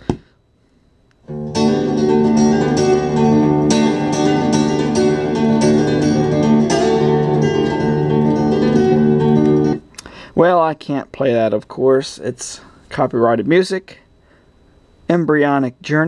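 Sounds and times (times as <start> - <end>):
acoustic guitar through speaker: 1.3 - 13.8.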